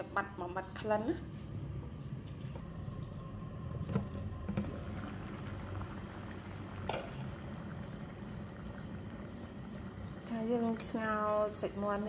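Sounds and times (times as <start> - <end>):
water boiling in pot: 2.9 - 12.0.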